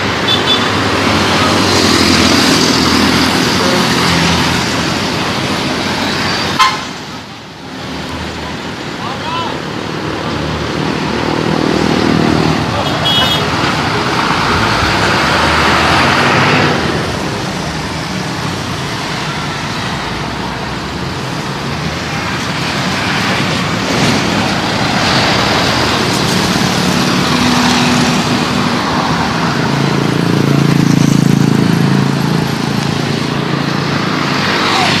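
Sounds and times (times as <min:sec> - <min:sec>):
bus rushing past: 0:00.0 - 0:35.0
traffic rumble: 0:00.0 - 0:35.0
truck passing: 0:09.4 - 0:35.0.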